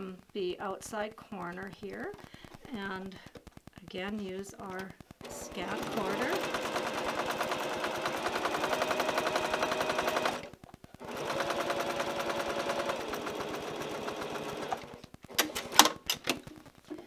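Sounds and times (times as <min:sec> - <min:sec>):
sewing machine needle clicking: 0:04.8 - 0:16.4
sewing machine motor hum: 0:05.2 - 0:15.9.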